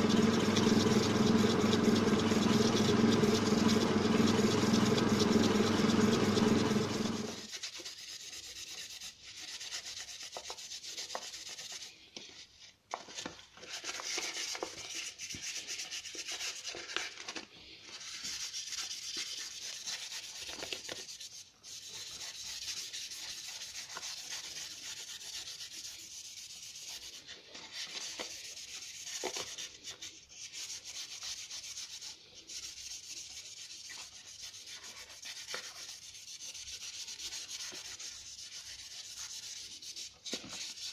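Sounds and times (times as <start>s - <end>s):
motor hum: 0.0s - 7.5s
sandpaper rubbing on stone: 0.0s - 12.6s, 13.6s - 17.2s, 17.9s - 40.9s.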